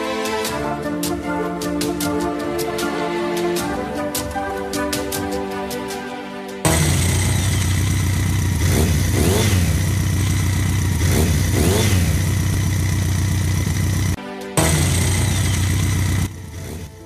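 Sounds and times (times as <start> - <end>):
motorcycle engine idling: 6.7 - 17.0.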